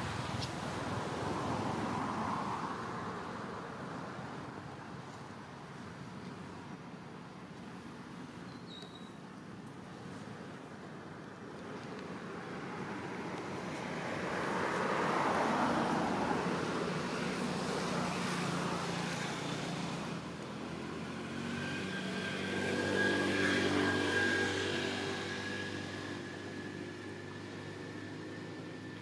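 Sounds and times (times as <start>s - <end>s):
engine passing by: 12.7s - 29.0s.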